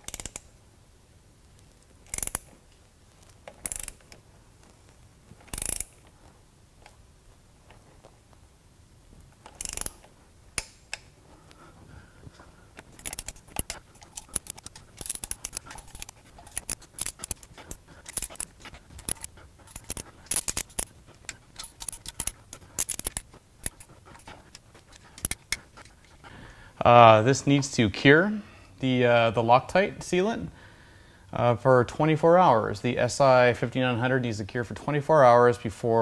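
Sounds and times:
hand ratchet clicking: 0:00.0 - 0:00.5, 0:02.0 - 0:02.5, 0:03.5 - 0:04.2, 0:05.5 - 0:06.0, 0:09.4 - 0:11.1, 0:12.8 - 0:26.2.

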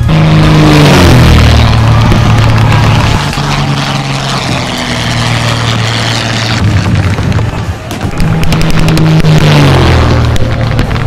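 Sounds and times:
gunfire: 0:06.9 - 0:11.0.

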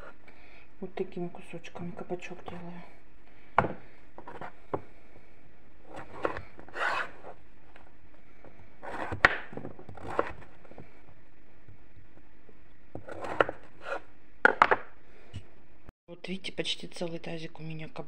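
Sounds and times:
knife cutting on wooden board: 0:03.6 - 0:04.9, 0:05.9 - 0:07.4, 0:08.8 - 0:10.6, 0:13.0 - 0:14.1.

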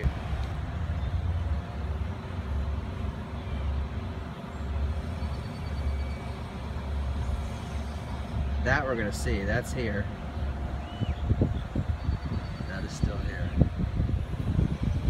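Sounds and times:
wind buffeting microphone: 0:06.8 - 0:15.0.

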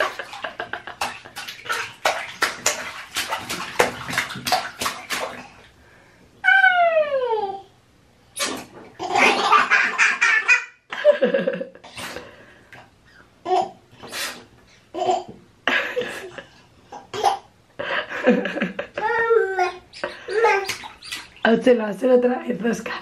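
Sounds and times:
baby laughing: 0:09.0 - 0:10.8, 0:14.9 - 0:15.4, 0:16.1 - 0:17.5, 0:18.4 - 0:21.4.

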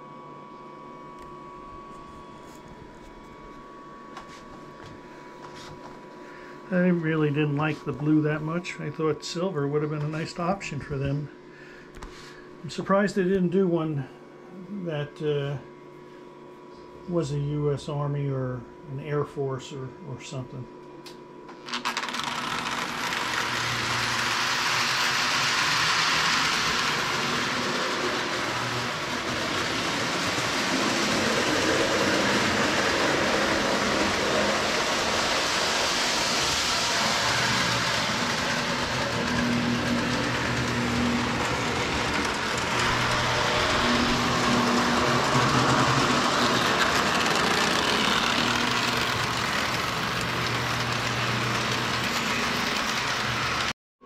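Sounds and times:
toy train motor whir: 0:21.6 - 0:53.7
wheel rumble on track: 0:25.2 - 0:53.7.

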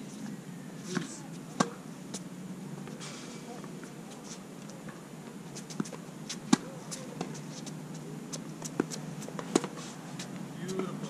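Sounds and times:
tennis ball hit and bouncing: 0:00.9 - 0:02.2, 0:05.6 - 0:07.7, 0:08.3 - 0:11.0.

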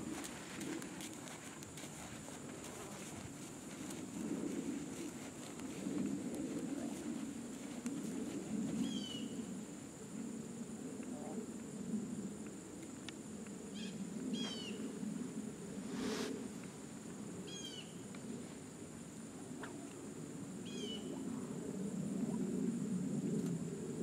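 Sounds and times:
high insect drone: 0:00.0 - 0:24.0.

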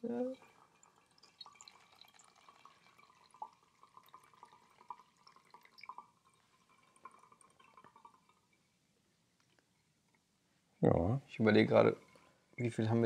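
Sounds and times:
liquid dripping into bottle: 0:00.5 - 0:08.7.

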